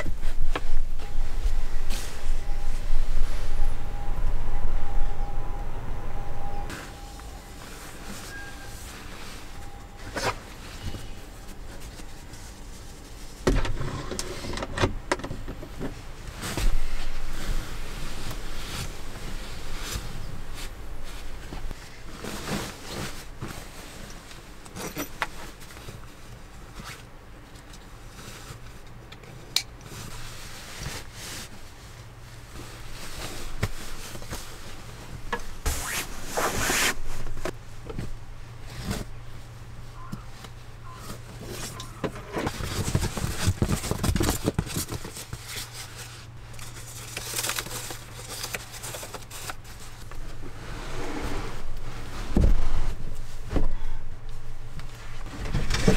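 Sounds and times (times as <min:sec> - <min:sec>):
steady low hum: 0:00.0 - 0:55.9
foam pad being folded: 0:29.9 - 0:37.6
fabric rustling: 0:29.9 - 0:40.1.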